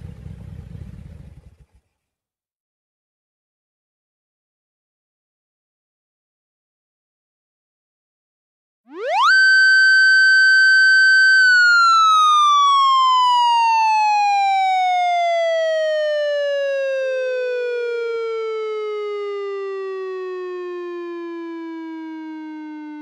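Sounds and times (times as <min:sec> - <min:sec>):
motorcycle siren wailing: 0:08.9 - 0:23.0.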